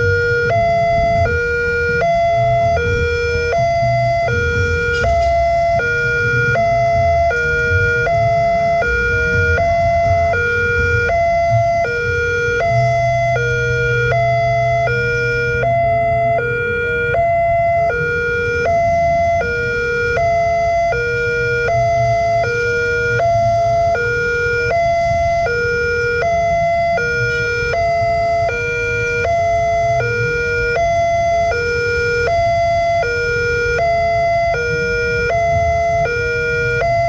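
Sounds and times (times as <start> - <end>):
two-tone level crossing alarm: 0.0 - 37.0.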